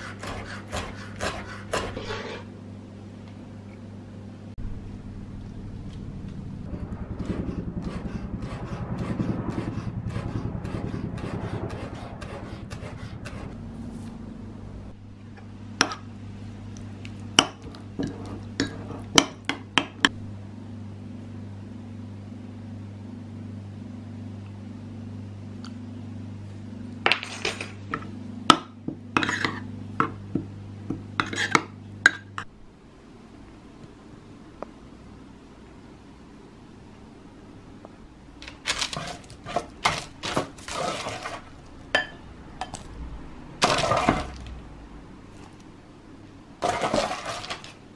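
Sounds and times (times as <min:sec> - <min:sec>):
knife chopping on wooden board: 0:00.0 - 0:02.3
low steady hum: 0:00.0 - 0:47.9.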